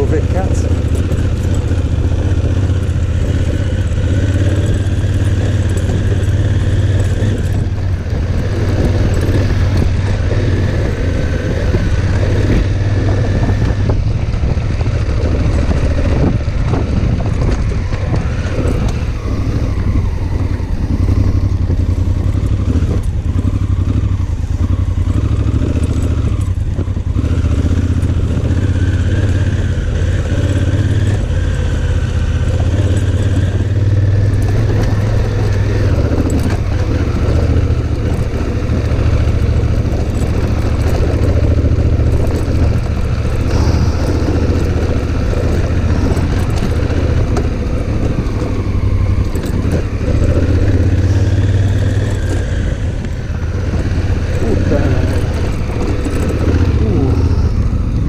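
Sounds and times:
motorcycle engine running: 0.0 - 58.0
stones clattering under tyres: 32.9 - 57.8.

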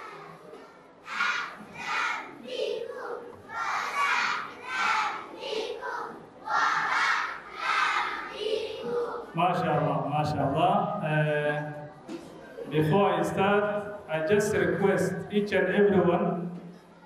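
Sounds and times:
crowd of children shouting: 0.0 - 9.4.

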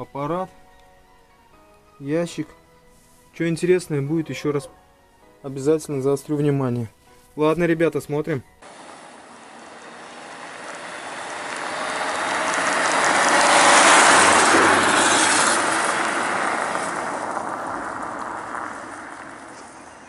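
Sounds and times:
car passing on snowy road: 8.6 - 20.0.

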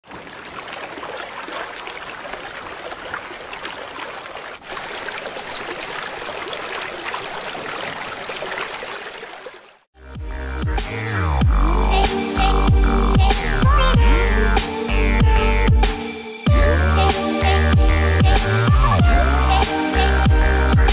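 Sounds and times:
raindrops hitting water: 0.0 - 9.9
water rushing along track: 0.0 - 9.9.

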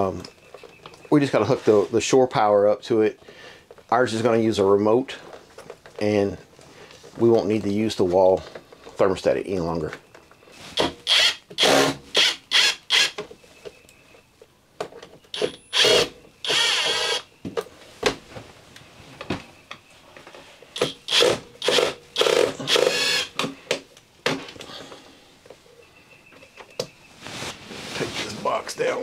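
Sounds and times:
cordless driver running in bursts: 15.4 - 17.2, 20.8 - 23.3.

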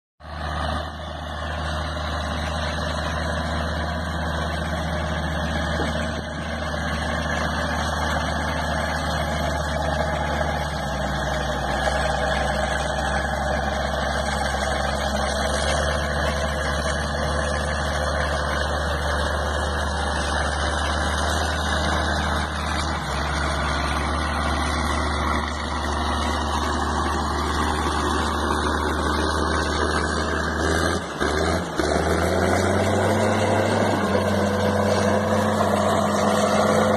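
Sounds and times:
diesel engine humming: 0.2 - 36.9.

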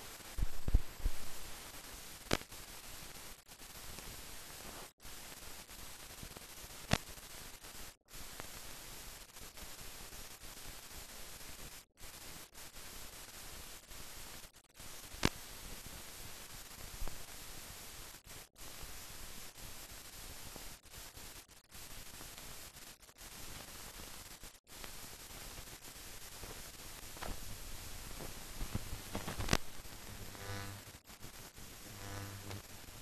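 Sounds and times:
film soundtrack hiss: 0.0 - 33.0
clicks and pops: 27.1 - 30.9, 31.9 - 32.6.

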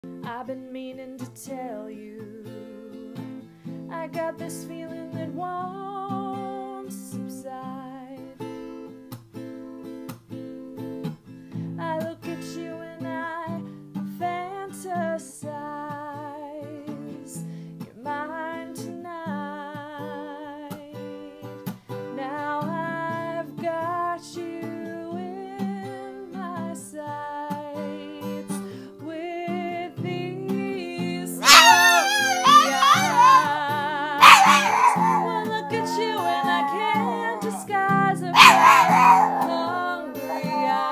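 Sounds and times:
woman singing ballad: 0.2 - 8.4, 11.8 - 40.9
strummed acoustic guitar: 2.2 - 14.6, 20.6 - 26.8.

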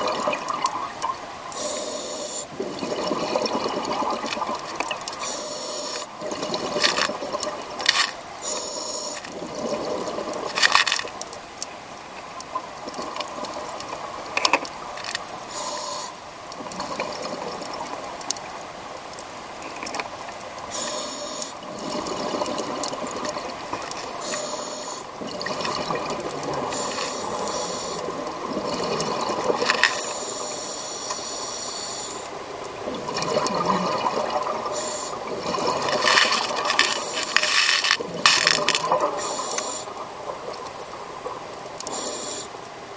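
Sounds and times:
exhaled bubbles underwater: 0.0 - 5.4, 6.0 - 8.5, 9.2 - 11.2, 16.5 - 18.3, 20.6 - 30.6, 32.0 - 37.3, 37.9 - 42.5
steady crackle with clicks: 0.0 - 42.9
regulator breathing hiss: 1.5 - 2.5, 5.2 - 6.1, 8.4 - 9.3, 15.5 - 16.2, 20.7 - 21.6, 24.2 - 25.1, 26.7 - 28.1, 29.9 - 32.4, 34.7 - 35.3, 36.8 - 37.9, 39.2 - 40.0, 41.9 - 42.6.

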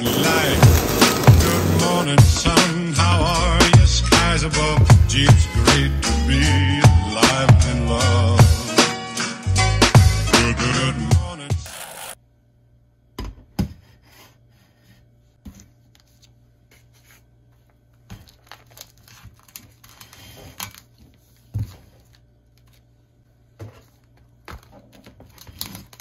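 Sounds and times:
kitchen items knocking: 0.0 - 2.5
packaging crinkling: 18.2 - 21.4.

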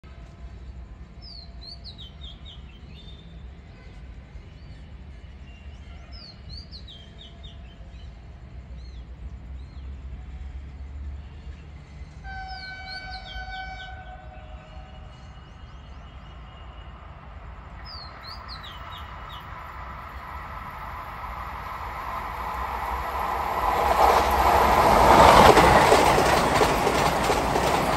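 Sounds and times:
train horn blast: 12.2 - 15.2
birds chirping: 12.6 - 27.9.

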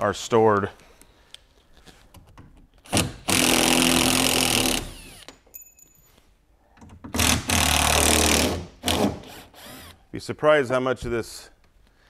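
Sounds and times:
cordless drill running: 3.2 - 5.3, 9.2 - 10.0.

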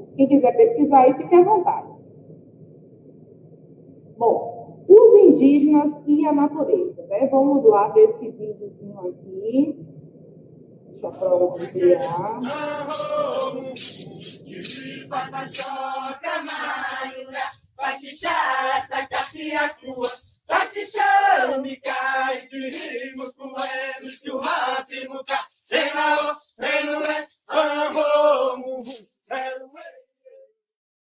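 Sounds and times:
rattles shaken: 11.2 - 30.0
group of voices chanting: 11.5 - 30.0.

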